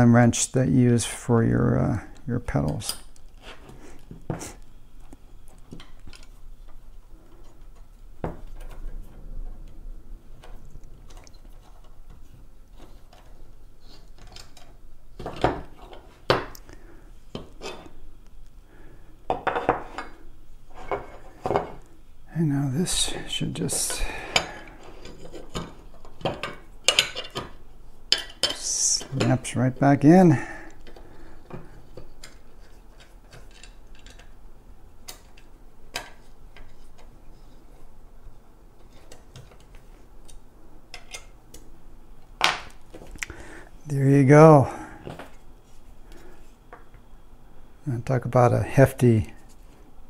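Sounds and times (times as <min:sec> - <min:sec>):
metal parts clicking and tapping: 0:23.7 - 0:29.6, 0:30.8 - 0:34.4.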